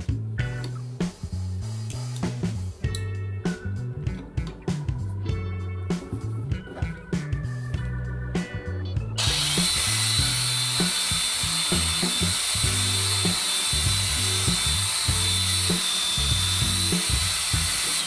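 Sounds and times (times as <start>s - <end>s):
background music: 0.0s - 18.0s
angle grinder running: 9.2s - 18.0s.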